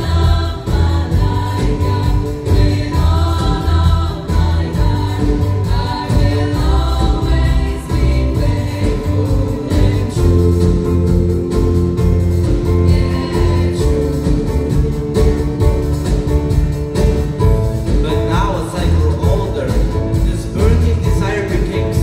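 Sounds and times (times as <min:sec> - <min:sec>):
children's choir singing: 0:00.0 - 0:11.8, 0:12.4 - 0:16.2
instrumental accompaniment: 0:00.0 - 0:22.0.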